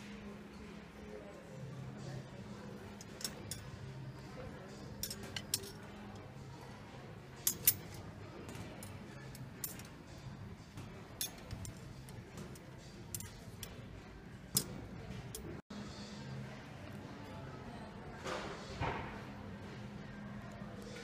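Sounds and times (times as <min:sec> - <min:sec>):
faint background music: 0:00.0 - 0:21.0
metal hanger hooks clicking on rail: 0:03.0 - 0:03.8, 0:05.0 - 0:05.9, 0:07.4 - 0:08.0, 0:13.1 - 0:13.8.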